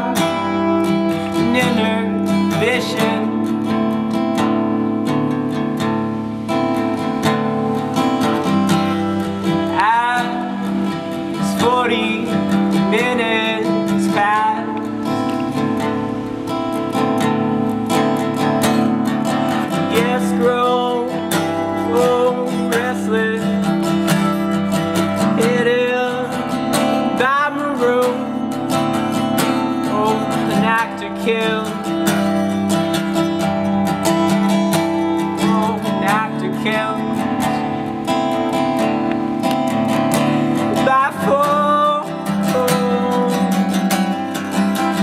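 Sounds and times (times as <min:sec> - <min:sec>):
man singing: 0:00.0 - 0:04.2, 0:09.2 - 0:15.6, 0:19.5 - 0:32.6, 0:34.5 - 0:38.1, 0:40.4 - 0:45.0
acoustic guitar strumming: 0:00.0 - 0:45.0.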